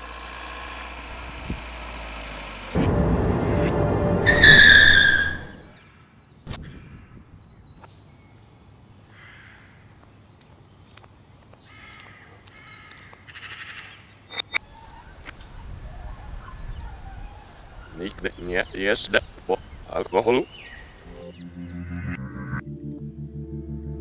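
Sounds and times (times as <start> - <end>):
road and engine noise: 0.0 - 6.2, 7.6 - 21.8
tyres squealing: 4.3 - 5.7.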